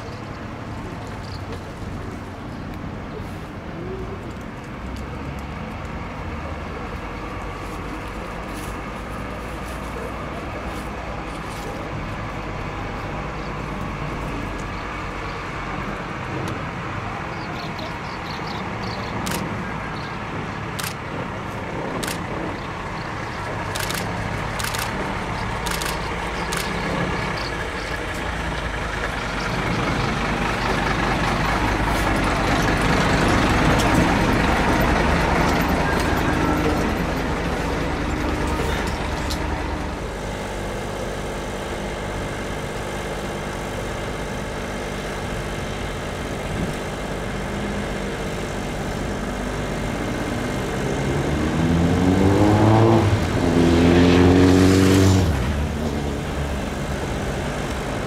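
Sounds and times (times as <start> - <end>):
diesel engine idling: 0.0 - 53.5, 55.2 - 58.0
long noisy rush: 0.0 - 58.0
sharp ticks: 18.5 - 19.6, 23.6 - 30.0.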